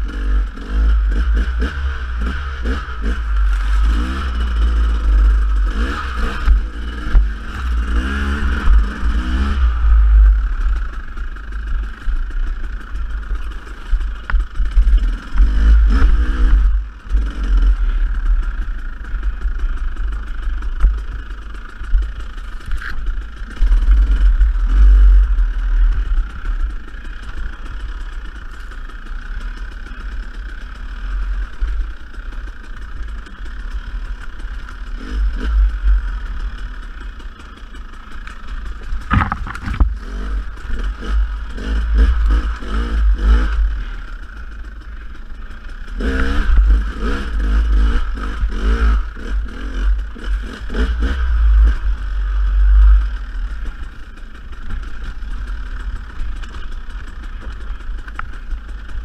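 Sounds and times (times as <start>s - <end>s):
dirt bike engine revving: 0.0s - 59.0s
sharp knock: 39.1s - 39.9s.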